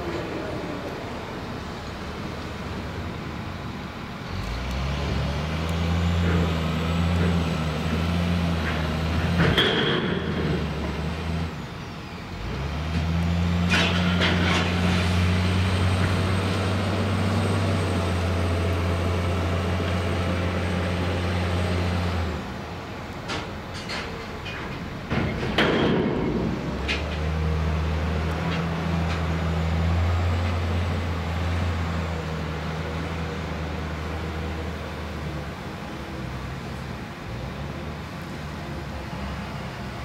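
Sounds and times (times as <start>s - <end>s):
metal clanks: 8.6s - 10.8s, 23.2s - 27.3s.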